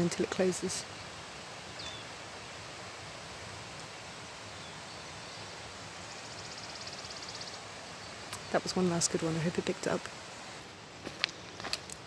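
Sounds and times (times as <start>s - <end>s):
bird singing: 0.0s - 2.2s, 4.4s - 10.1s
rustling hiss: 0.0s - 12.0s.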